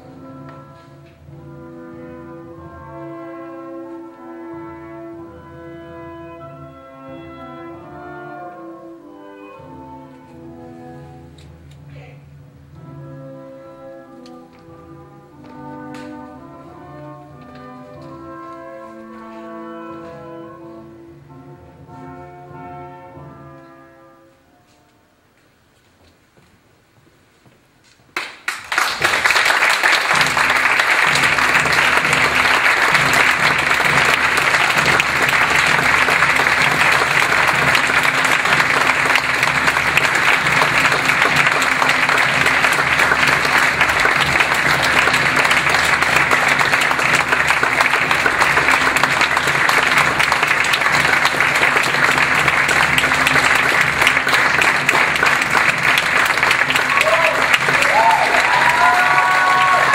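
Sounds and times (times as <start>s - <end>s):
audience applauding: 28.2s - 59.9s.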